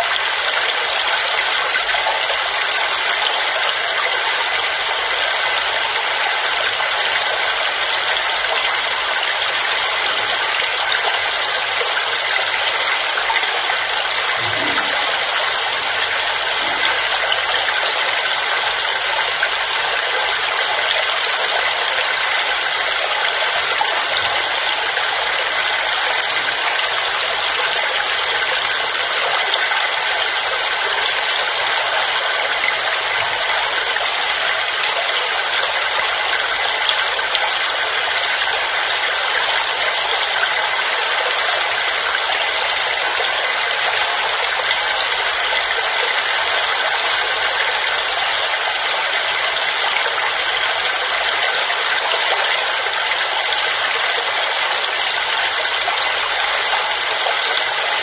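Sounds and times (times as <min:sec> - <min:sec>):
waterfall rushing: 0:07.5 - 0:29.0.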